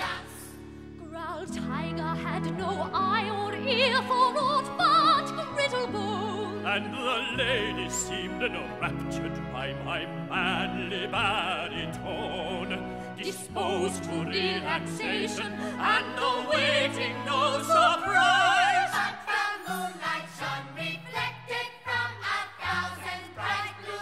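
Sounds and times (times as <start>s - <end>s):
operatic singing with vibrato: 0.0s - 24.0s.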